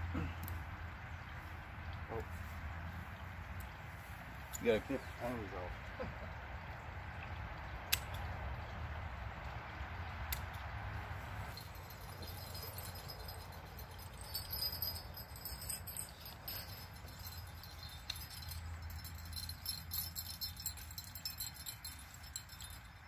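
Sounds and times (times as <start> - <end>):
low wind rumble: 0.0 - 23.0
metallic jingling and clinking: 11.3 - 23.0.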